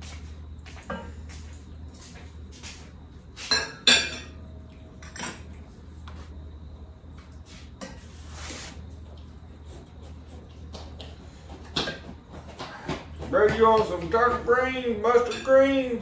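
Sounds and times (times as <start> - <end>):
dishes and cookware clattering: 0.8 - 1.2, 3.4 - 4.4, 5.0 - 5.5.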